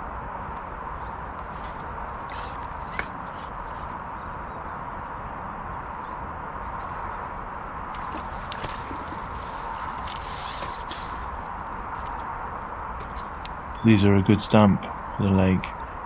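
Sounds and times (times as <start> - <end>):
fishing pole clicks and knocks: 1.3 - 3.9
steady hiss: 8.0 - 12.2.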